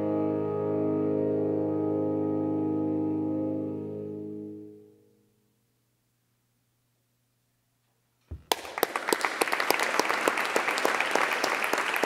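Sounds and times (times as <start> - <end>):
audience applause: 8.4 - 12.0.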